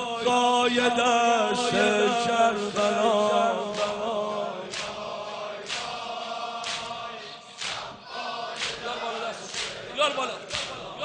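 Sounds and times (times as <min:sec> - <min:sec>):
crowd chanting in unison: 0:00.0 - 0:11.0
chest-beating slaps: 0:04.7 - 0:05.0, 0:05.6 - 0:06.0, 0:06.6 - 0:07.0, 0:07.6 - 0:08.0, 0:08.6 - 0:09.8, 0:10.4 - 0:10.9.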